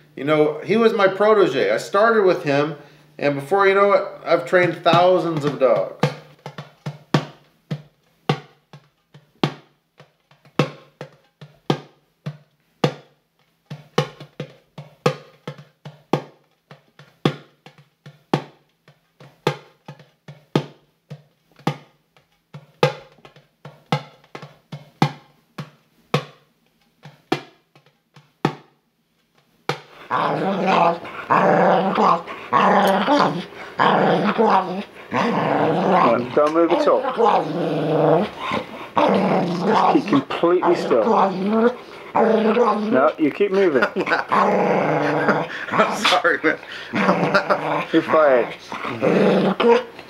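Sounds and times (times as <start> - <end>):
sparse percussive music: 4.5 - 20.8, 29.7 - 50.0
dog growling: 30.0 - 50.0.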